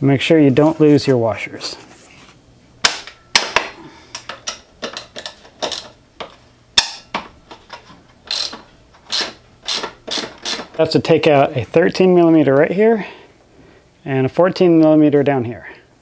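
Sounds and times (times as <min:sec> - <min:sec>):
hand tools clicking on metal: 0:03.0 - 0:10.8.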